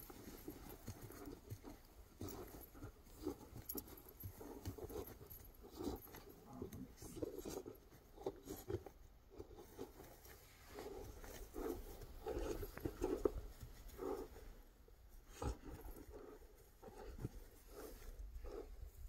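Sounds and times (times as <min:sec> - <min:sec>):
paws scuffing on grass: 0:09.6 - 0:14.5.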